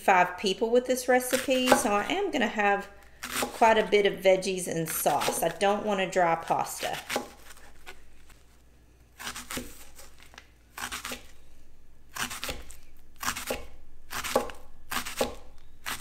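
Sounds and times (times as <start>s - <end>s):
knife slicing onion on cutting board: 1.2s - 2.5s, 3.2s - 4.0s, 4.9s - 5.8s, 6.6s - 8.0s, 9.2s - 10.2s, 10.8s - 11.4s, 12.1s - 16.0s.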